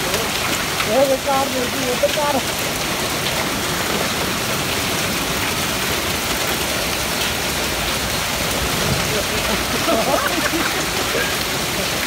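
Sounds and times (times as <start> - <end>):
hail and rain on pavement: 0.0 - 12.0.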